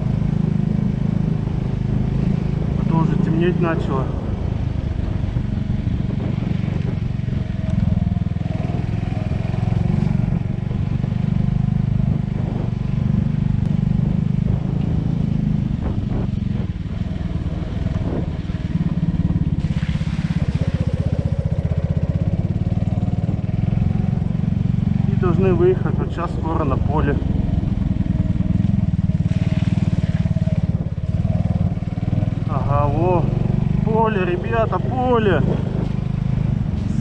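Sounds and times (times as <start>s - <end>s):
motorbike engine running: 0.0s - 37.0s
short hissing rush: 36.7s - 37.0s.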